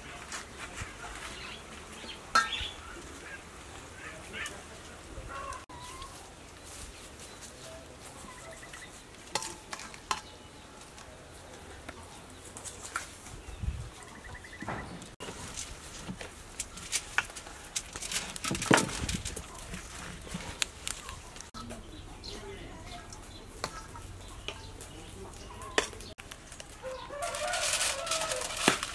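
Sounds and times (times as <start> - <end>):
leaf crackling as folded: 15.2 - 21.6, 25.5 - 28.9.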